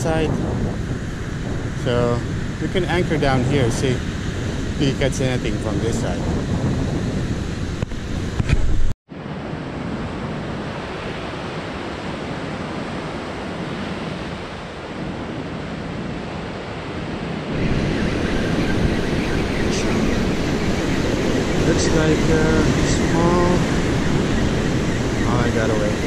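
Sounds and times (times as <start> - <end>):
wind: 0.0 - 26.0
ocean waves breaking on beach: 9.1 - 26.0.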